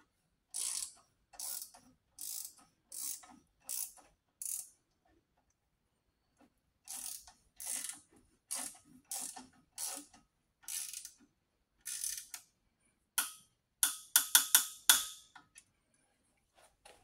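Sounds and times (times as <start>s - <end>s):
ratchet pawl clicking: 0.5s - 4.7s, 6.9s - 10.1s, 10.7s - 11.2s, 11.8s - 12.5s.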